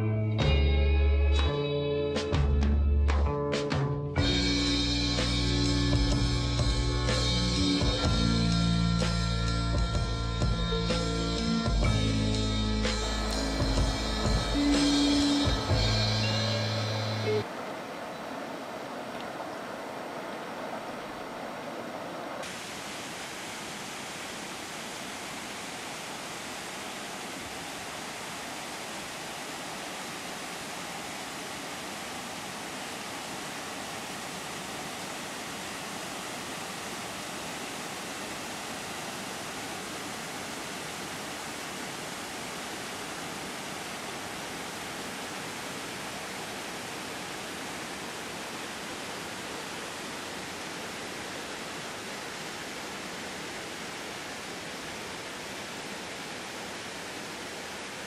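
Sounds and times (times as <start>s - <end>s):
waterfall rushing: 12.8s - 58.0s.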